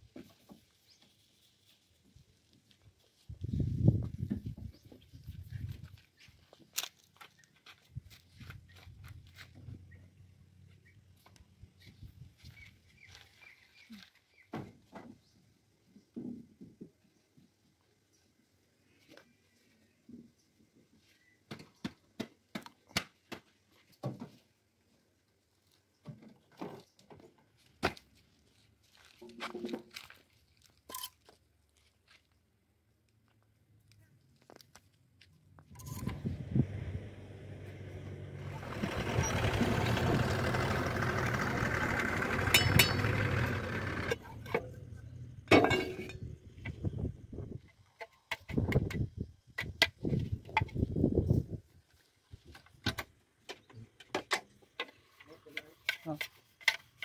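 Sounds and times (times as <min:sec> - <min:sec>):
diesel engine running: 0:35.8 - 0:46.8.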